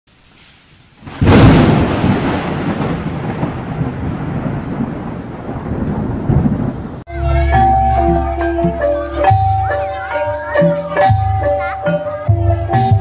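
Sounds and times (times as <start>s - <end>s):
rolling thunder rumble: 1.0s - 7.1s
thunderclap: 1.0s - 7.1s.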